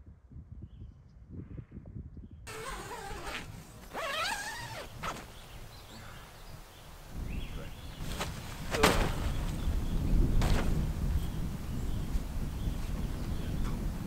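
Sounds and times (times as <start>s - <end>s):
tent zipper being pulled: 2.5s - 5.5s
tent fabric rustling: 2.5s - 6.2s, 7.8s - 9.8s.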